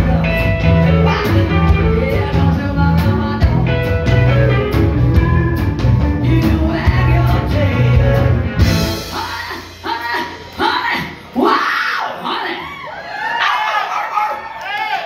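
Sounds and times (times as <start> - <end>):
woman singing: 0.0 - 4.4, 6.2 - 8.3
electric guitar: 0.0 - 9.8
electric bass: 0.0 - 11.2
drum kit: 0.0 - 11.4.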